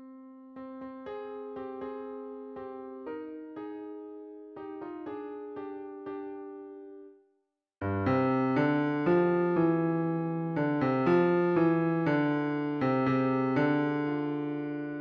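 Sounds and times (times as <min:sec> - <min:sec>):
midi piano notes: 0:07.8 - 0:15.0.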